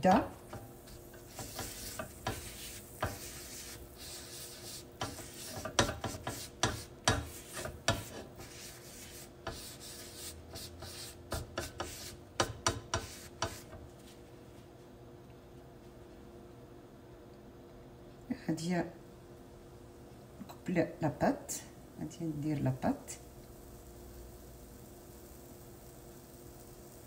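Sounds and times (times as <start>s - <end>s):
hand rubbing butter on pan: 0.0s - 14.2s.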